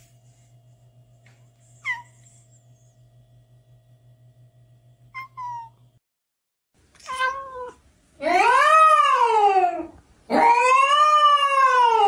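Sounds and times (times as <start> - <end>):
cat meowing: 5.2 - 5.8, 7.0 - 9.6.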